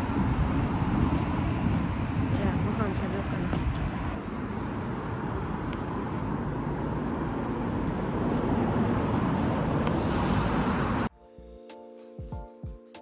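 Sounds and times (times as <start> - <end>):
city street traffic: 0.0 - 11.2.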